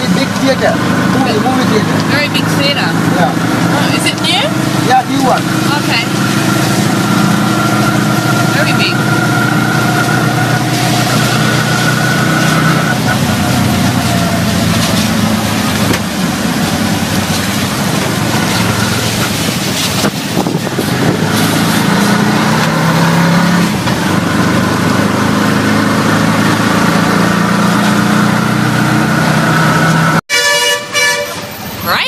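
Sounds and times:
horn tooting: 0.0 - 15.1, 30.2 - 32.0
road and rain noise: 0.0 - 32.0.

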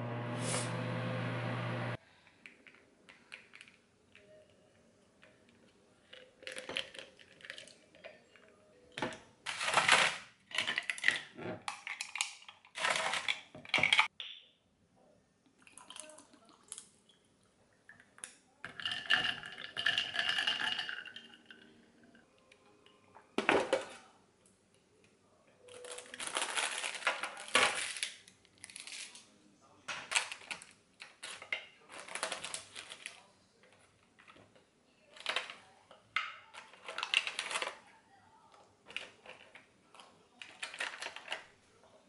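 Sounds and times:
ice cubes clinking into glass: 18.7 - 21.7
water pouring over ice: 18.7 - 21.7
plastic clatter: 38.9 - 41.5.

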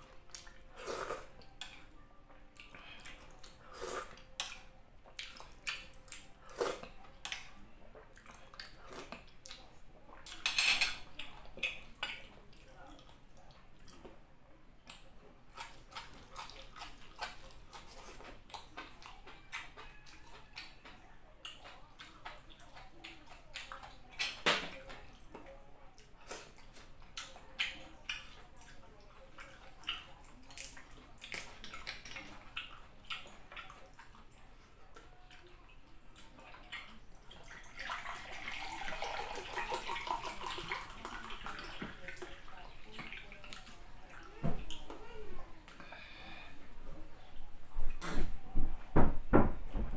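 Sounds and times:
wet chewing mouth sounds: 14.8 - 24.5, 26.0 - 37.6
liquid in a glass mug: 37.6 - 42.4.

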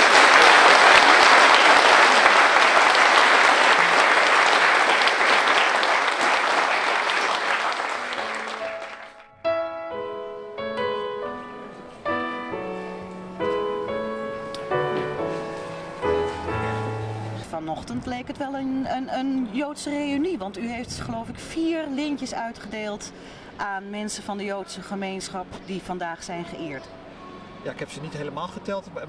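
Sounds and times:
audience applauding: 0.0 - 9.4
slow instrumental music: 8.0 - 17.5.

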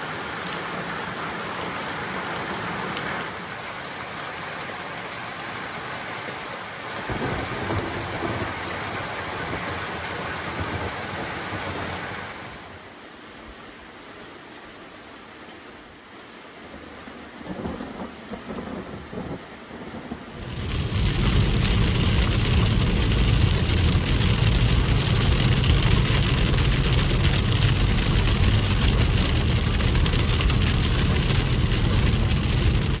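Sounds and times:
rain on a moving car: 0.0 - 33.0
steady rain: 0.0 - 33.0
thunder rumbling: 7.0 - 12.4, 17.5 - 33.0
deep road noise: 20.3 - 33.0.

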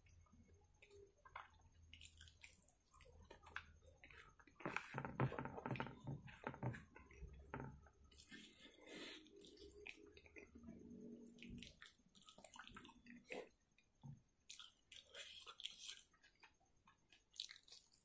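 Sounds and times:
wet chewing and lip smacking: 0.1 - 4.6, 6.4 - 18.0.

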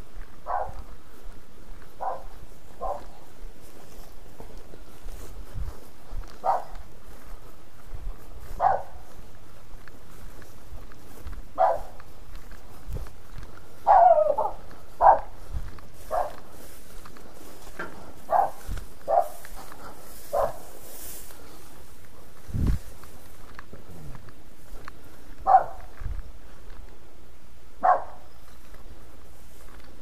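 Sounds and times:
dull footstep thuds: 0.1 - 27.0
dog barking: 0.4 - 0.9, 2.0 - 3.2, 6.4 - 6.8, 8.6 - 9.1, 11.6 - 12.0, 13.8 - 15.4, 16.1 - 16.4, 18.3 - 19.4, 20.3 - 20.7, 25.4 - 25.9, 27.8 - 28.3.

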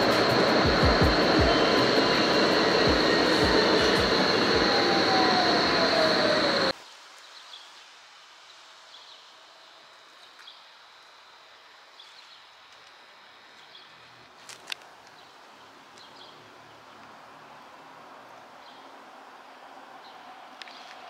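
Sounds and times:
lower whine falling in pitch: 0.0 - 6.7
steady high whine: 0.0 - 6.8
vehicle ride rumble: 0.0 - 6.8.

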